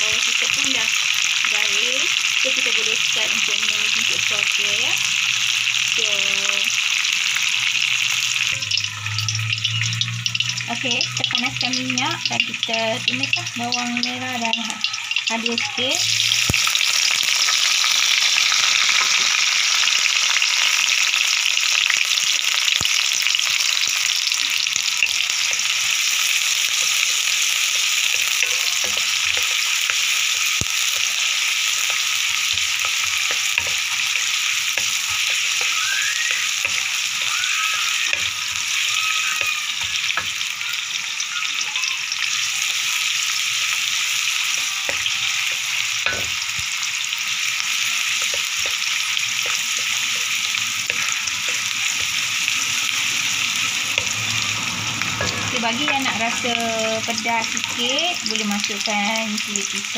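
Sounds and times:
onion sizzling in hot oil: 0.0s - 59.9s
spatula scraping wok: 24.6s - 40.5s, 42.5s - 58.2s.

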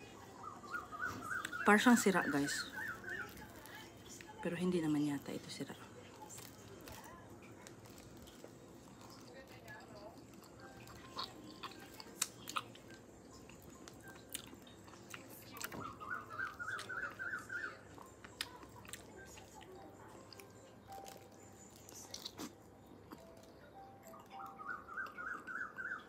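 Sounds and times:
person chewing soft fruit: 6.4s - 26.0s.

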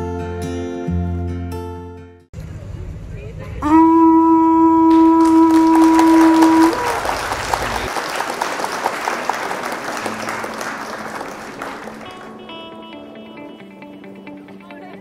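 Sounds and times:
conch shell horn note: 3.6s - 7.8s
applause: 4.9s - 12.6s.

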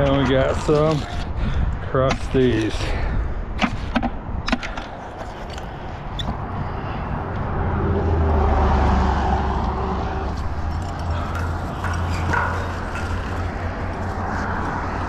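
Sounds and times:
vehicle passing: 5.7s - 15.0s.

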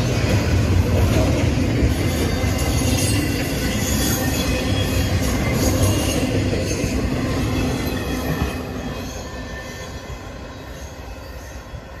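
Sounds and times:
freight train cars rolling past: 0.0s - 12.0s
steel wheels on rails: 0.0s - 12.0s.

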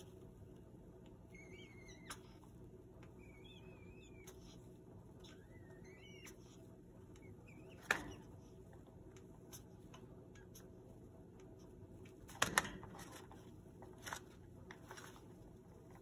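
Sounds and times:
parrot chirp: 1.3s - 2.4s, 3.2s - 4.6s, 5.2s - 6.6s, 7.2s - 8.2s.

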